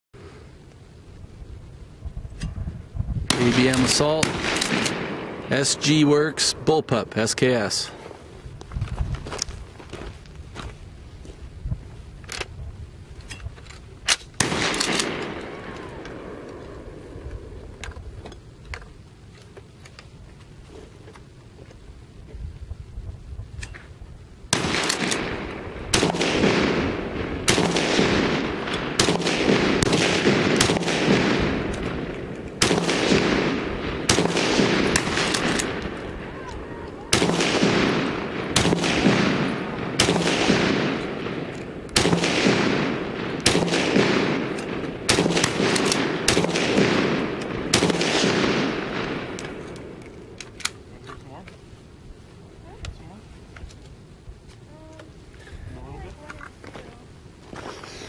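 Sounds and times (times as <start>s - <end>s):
rifle shots echoing: 3.3s - 8.0s, 14.1s - 17.8s, 24.5s - 50.8s.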